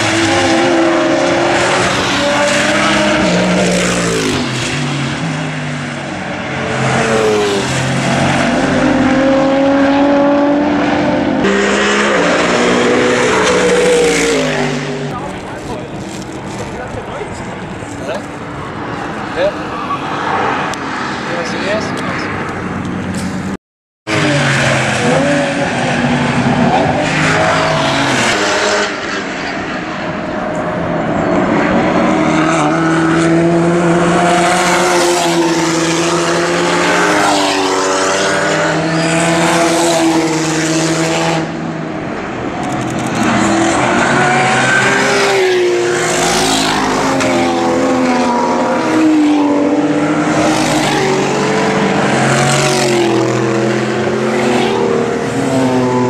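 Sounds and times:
racing car engines revving: 0.0s - 56.0s.

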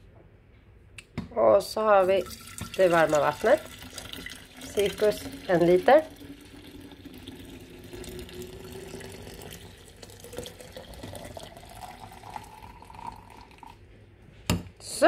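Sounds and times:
water pouring into glass carafe: 2.0s - 13.8s.

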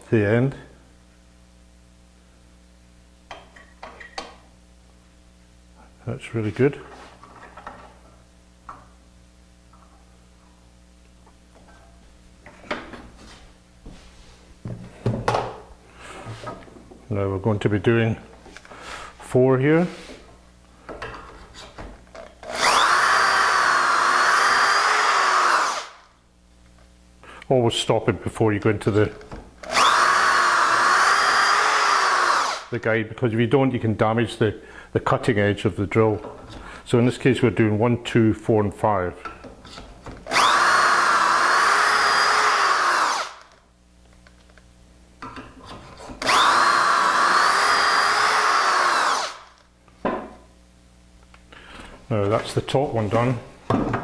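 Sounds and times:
electric drill boring into wood: 22.4s - 26.0s, 29.6s - 32.7s, 40.3s - 43.5s, 46.2s - 49.6s.

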